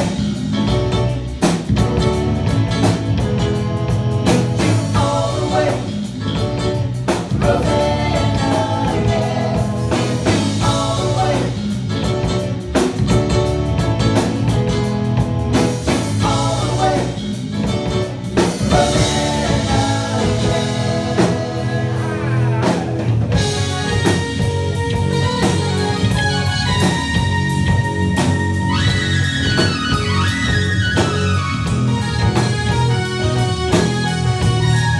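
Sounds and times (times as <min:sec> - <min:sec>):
soft rock band playing: 0:00.0 - 0:34.9
woman singing: 0:04.8 - 0:06.1, 0:18.7 - 0:22.8.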